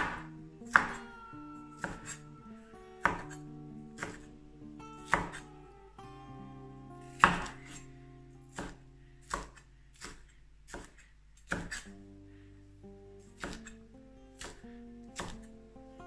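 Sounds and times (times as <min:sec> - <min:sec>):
knife chopping on wooden board: 0:00.0 - 0:01.0, 0:01.8 - 0:02.2, 0:03.0 - 0:03.4, 0:04.0 - 0:04.3, 0:05.1 - 0:05.4, 0:07.2 - 0:07.8, 0:08.5 - 0:11.9, 0:13.4 - 0:13.8, 0:14.4 - 0:14.6, 0:15.2 - 0:15.5.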